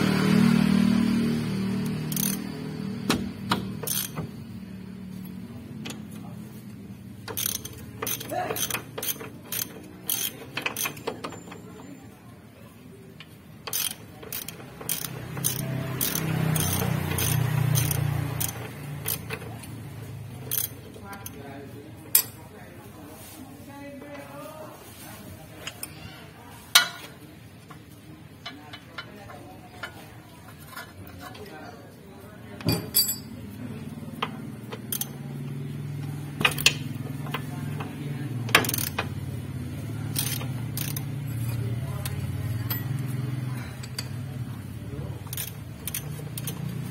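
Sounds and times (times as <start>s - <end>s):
socket ratchet clicking: 1.8s - 2.5s, 3.1s - 4.3s, 7.2s - 11.4s, 13.6s - 19.5s, 20.5s - 21.3s, 34.8s - 35.2s, 38.5s - 39.1s, 40.1s - 41.1s, 45.3s - 46.8s
socket wrench clinking on metal: 3.8s - 4.2s, 7.3s - 11.6s, 22.1s - 22.4s, 32.6s - 33.4s.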